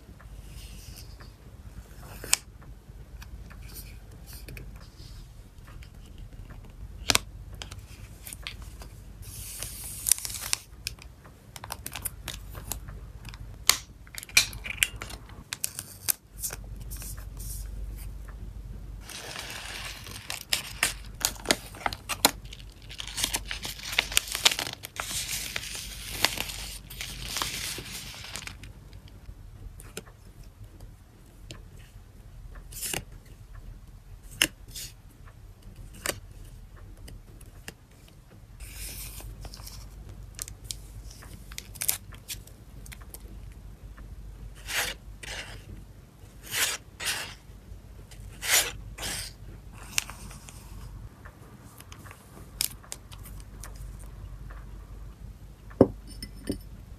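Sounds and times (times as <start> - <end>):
plastic and paper crinkling: 19.0 - 29.2.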